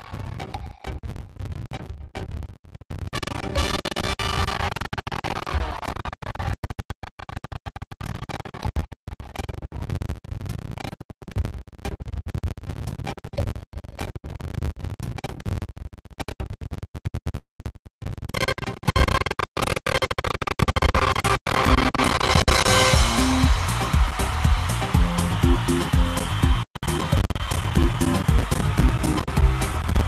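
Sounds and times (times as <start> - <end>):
game show music through video call: 22.4 - 30.0.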